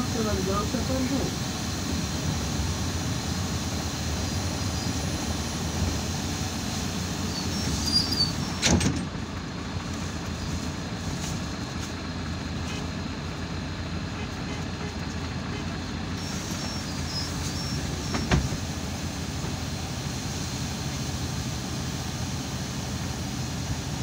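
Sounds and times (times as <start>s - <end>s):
bus engine rumbling: 0.0s - 24.0s
door squeak: 7.3s - 9.0s
bus doors closing thump: 7.7s - 9.2s, 17.2s - 19.6s.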